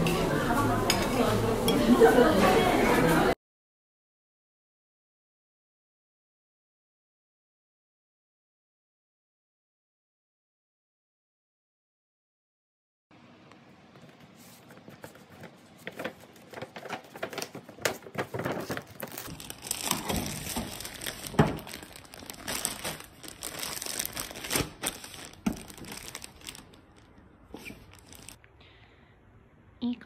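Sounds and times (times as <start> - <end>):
paper bag rustling: 14.2 - 28.4
plastic sleeve crinkling: 14.6 - 28.4.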